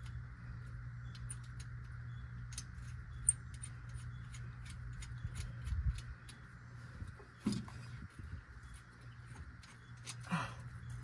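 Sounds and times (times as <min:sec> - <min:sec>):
metal parts clicking and tapping: 0:00.0 - 0:11.0
steady low hum: 0:00.0 - 0:11.0.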